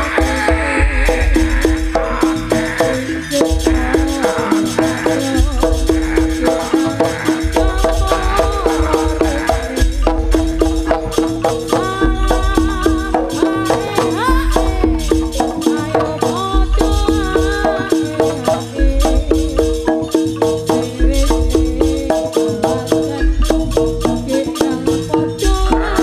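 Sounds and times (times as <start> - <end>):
drum strokes: 0.0 - 26.0
high held tone: 0.0 - 26.0
wavering melody line: 0.0 - 26.0.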